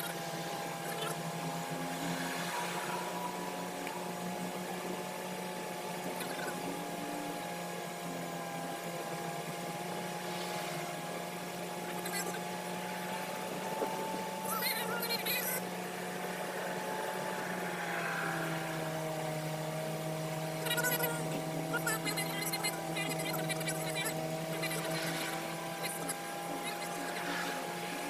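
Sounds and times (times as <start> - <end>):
car engine and road noise: 0.0 - 28.0.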